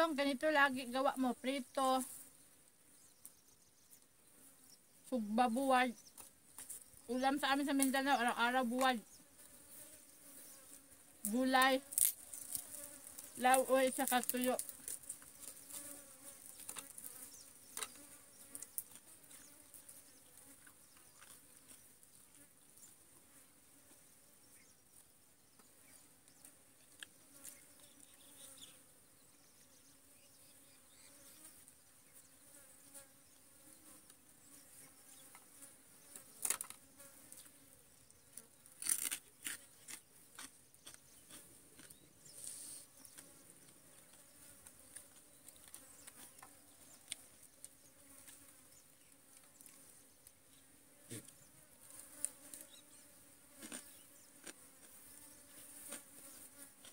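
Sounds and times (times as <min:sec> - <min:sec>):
flies and insects buzzing: 0:00.0 - 0:56.9
crunching of chewing fried fish: 0:11.8 - 0:13.4, 0:20.4 - 0:21.8, 0:38.7 - 0:48.5, 0:53.5 - 0:55.1.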